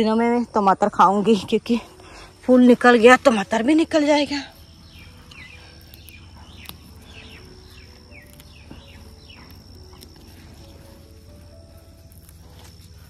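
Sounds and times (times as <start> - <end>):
high insect whine: 0.0 - 13.0
faint clicks of herbs picked: 3.2 - 13.0.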